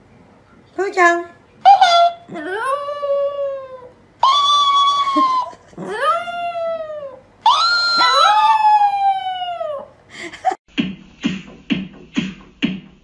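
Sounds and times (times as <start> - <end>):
dog howling: 1.7 - 10.0.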